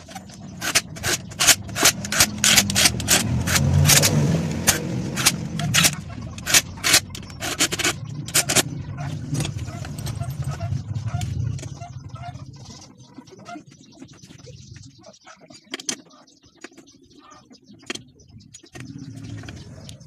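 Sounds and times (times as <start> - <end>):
rattling bursts of impacts: 0.0 - 12.1
impact driver motor whirring: 0.6 - 7.6.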